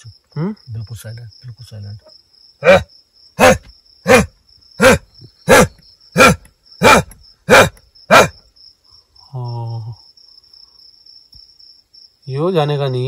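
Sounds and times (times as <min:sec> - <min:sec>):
crickets chirring: 0:00.0 - 0:13.0
animal barking: 0:02.6 - 0:08.4.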